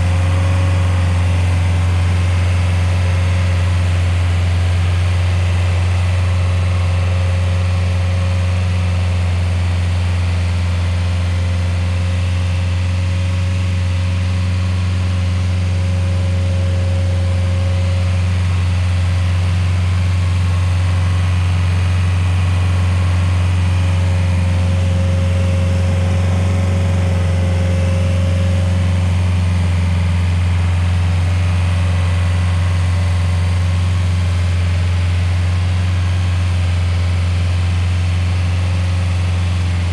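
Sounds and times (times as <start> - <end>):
stump grinder engine running: 0.0 - 39.9.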